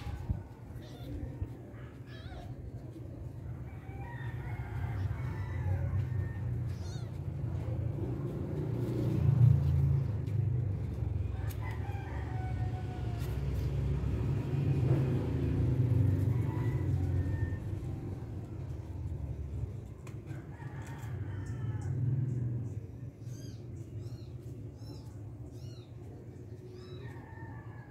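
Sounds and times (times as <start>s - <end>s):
rooster crowing: 3.6s - 7.1s, 11.3s - 18.6s, 20.3s - 22.2s, 26.8s - 27.9s.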